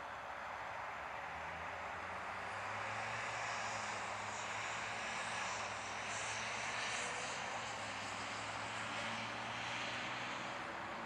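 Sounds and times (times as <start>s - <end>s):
distant farm machinery drone: 0.0s - 11.0s.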